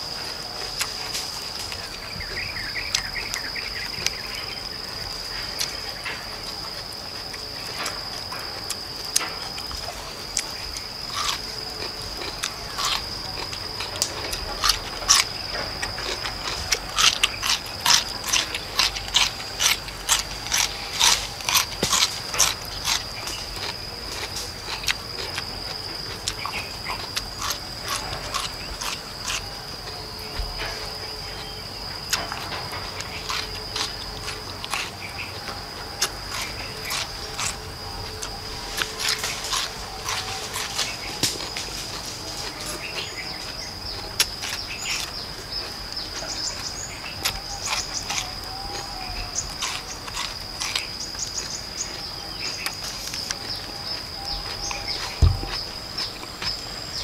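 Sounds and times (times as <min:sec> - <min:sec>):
crunchy bites and chewing: 0:00.0 - 0:57.0
high insect drone: 0:00.0 - 0:57.0.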